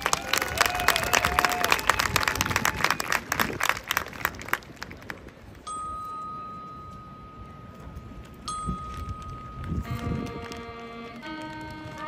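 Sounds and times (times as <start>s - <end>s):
audience applause: 0.0s - 5.0s
high bell note ringing: 5.7s - 9.9s.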